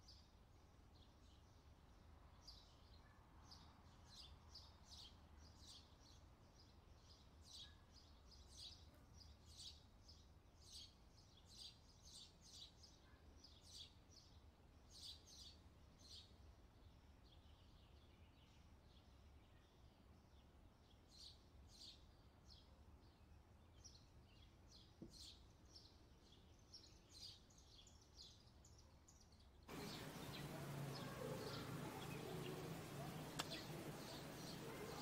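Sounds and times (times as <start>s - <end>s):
bird chirps: 29.7s - 35.0s.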